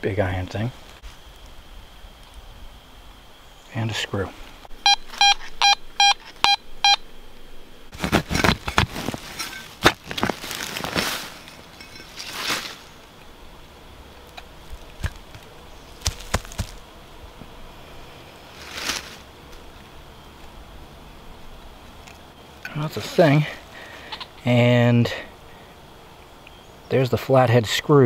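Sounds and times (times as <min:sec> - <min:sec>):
metal detector beeping: 0:04.8 - 0:07.0
digger crunching into soil and roots: 0:07.9 - 0:12.9, 0:14.4 - 0:16.8
soil clicks and rustles: 0:07.9 - 0:13.2, 0:14.2 - 0:16.9, 0:18.4 - 0:19.9.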